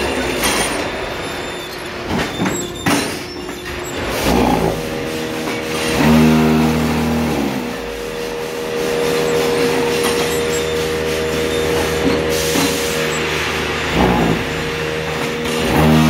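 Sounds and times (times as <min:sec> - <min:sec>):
machine clatter: 0:00.0 - 0:16.0
machine whining hum: 0:00.0 - 0:16.0
deep machine hum: 0:04.1 - 0:09.5, 0:10.4 - 0:16.0.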